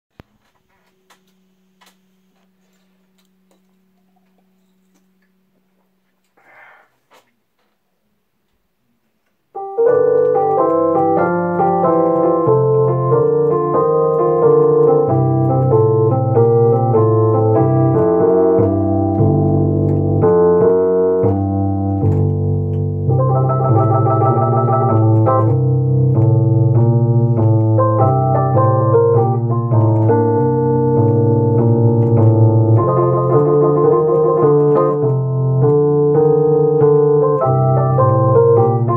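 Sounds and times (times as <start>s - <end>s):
solo piano playing: 9.5s - 38.9s
click: 18.2s - 22.8s, 23.7s - 38.9s.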